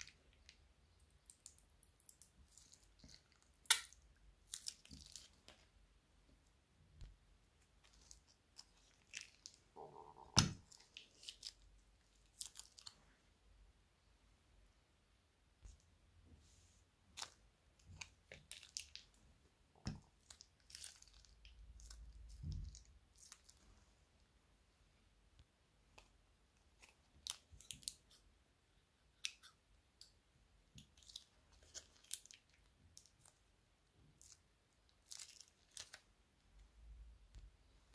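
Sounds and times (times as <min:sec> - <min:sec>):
slime squelch: 0:00.0 - 0:13.8, 0:15.5 - 0:37.9.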